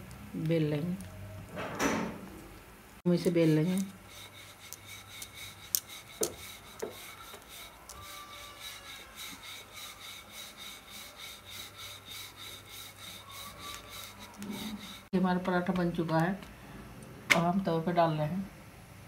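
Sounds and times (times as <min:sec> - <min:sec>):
rolling pin rubbing on dough: 0:03.1 - 0:15.1.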